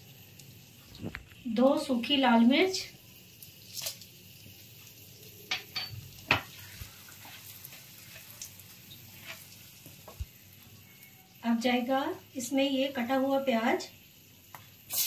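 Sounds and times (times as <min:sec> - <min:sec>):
chillies sizzling in oil: 0:00.0 - 0:15.0
spoon stirring in pan: 0:05.5 - 0:10.3.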